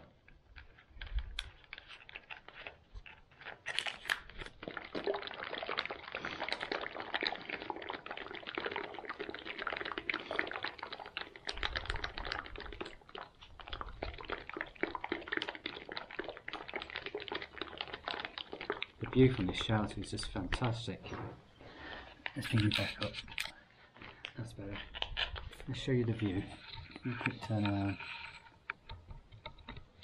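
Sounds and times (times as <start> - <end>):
liquid sloshing in a pouch: 0.0 - 30.0
packet crackling: 0.2 - 21.0.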